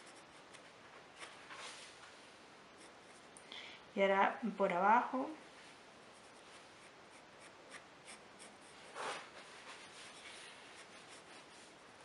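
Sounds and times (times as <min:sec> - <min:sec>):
pencil scratching on paper: 0:00.0 - 0:01.4, 0:02.8 - 0:03.3, 0:06.1 - 0:11.8.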